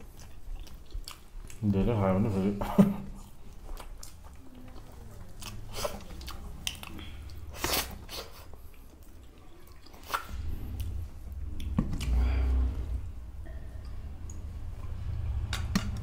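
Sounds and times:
close-miked chewing and mouth smacks: 0.0s - 12.2s.

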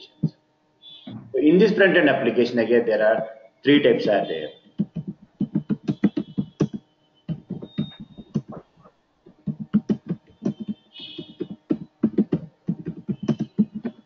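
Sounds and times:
computer keyboard typing: 4.6s - 14.0s.

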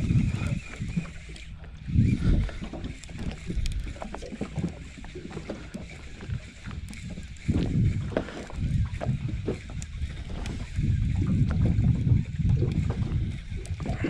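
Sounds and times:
low rumbling wind gusts: 0.0s - 0.8s, 1.8s - 2.8s, 7.4s - 14.0s
fishing reel clicks: 0.0s - 13.9s
water lapping against boat: 0.0s - 14.0s.

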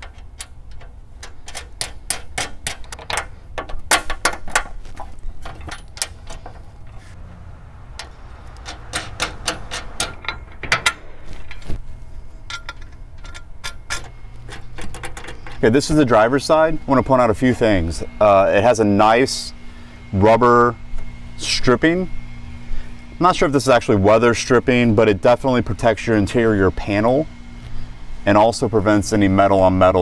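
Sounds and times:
small metal clicks and taps: 0.0s - 4.7s.

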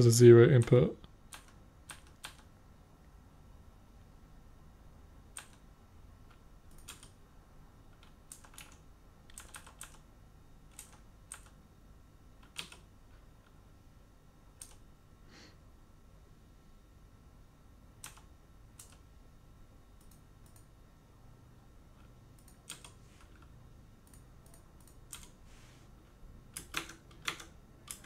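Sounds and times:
low steady hiss: 0.0s - 28.0s
keyboard keystrokes: 0.6s - 2.5s, 5.3s - 5.6s, 6.3s - 7.2s, 7.9s - 10.0s, 10.7s - 11.6s, 12.4s - 12.9s, 18.0s - 19.0s, 22.4s - 25.4s, 26.5s - 28.0s.

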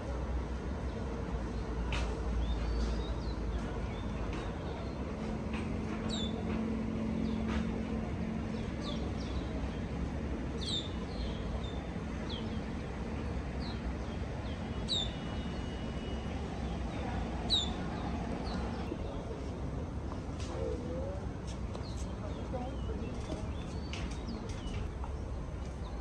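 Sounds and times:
small birds chirping: 1.4s - 19.4s, 21.7s - 26.0s.

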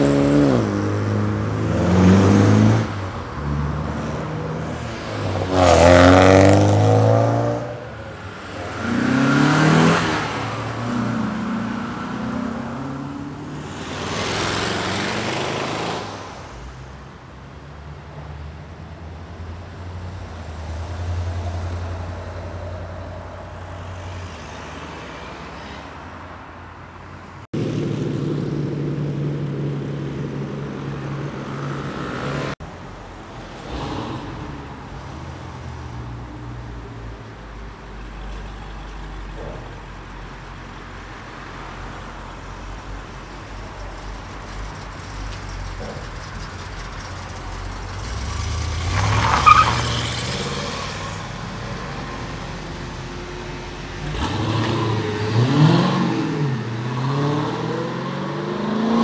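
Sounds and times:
car engines driving past: 0.0s - 59.0s
car pulling away: 43.1s - 59.0s.

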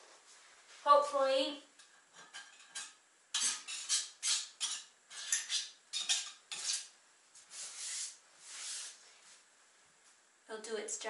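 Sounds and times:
caulk scraping strokes: 3.4s - 9.0s.

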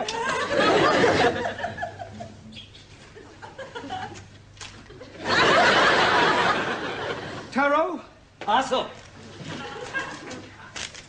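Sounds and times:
studio audience laughing: 0.0s - 2.4s, 3.2s - 7.5s, 9.4s - 10.5s.

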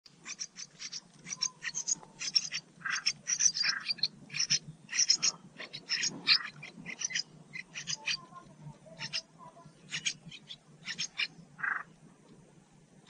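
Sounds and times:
nestlings chirping: 0.1s - 12.1s.

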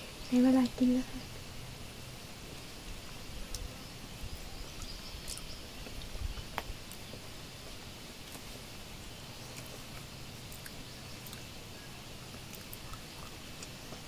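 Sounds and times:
insects: 0.0s - 14.0s.

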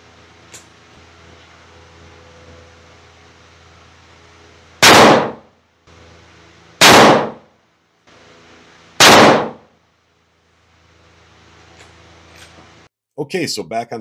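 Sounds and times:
rifle shots: 4.8s - 5.5s, 6.8s - 7.5s, 9.0s - 9.7s.

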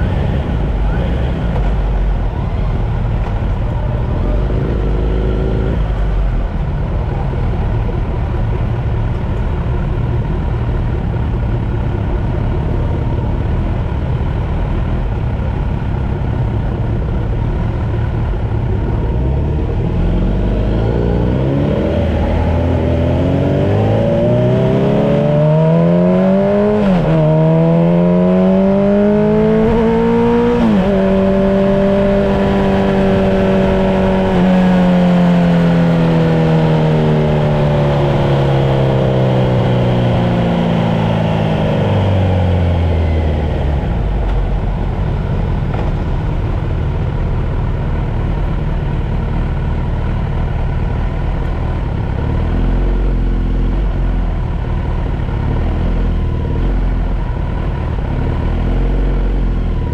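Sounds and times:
motorcycle engine revving: 3.8s - 6.3s, 17.4s - 59.9s.

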